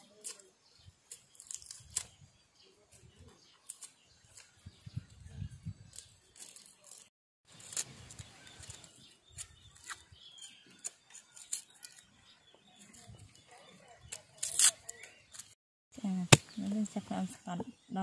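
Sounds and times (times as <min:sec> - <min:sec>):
knife clicking and scraping garlic skins: 0:00.2 - 0:02.2, 0:03.6 - 0:04.5, 0:05.9 - 0:12.1, 0:14.1 - 0:15.6.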